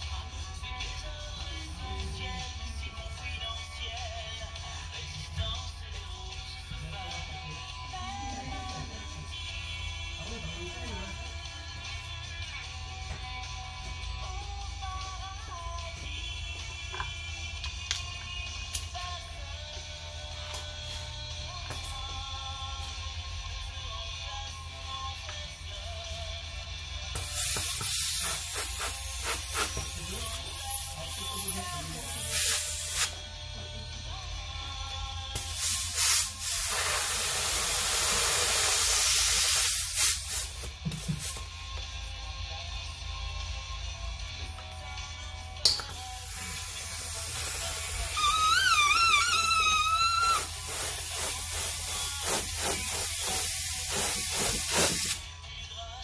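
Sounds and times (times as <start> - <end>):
balloon inflator hissing: 27.2 - 33.2, 35.4 - 41.5, 46.1 - 55.2
wavering squeal: 48.1 - 50.5.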